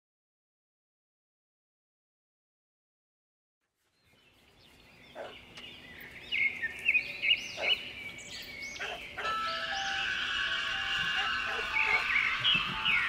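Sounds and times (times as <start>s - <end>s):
bird-like chirps and whistles: 4.3s - 13.0s
sustained musical tones: 7.1s - 13.0s.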